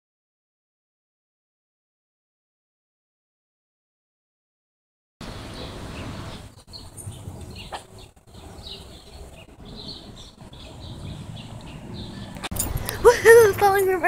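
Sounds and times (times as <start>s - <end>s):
small birds chirping: 5.2s - 14.0s
low rumble on microphone: 5.3s - 13.1s.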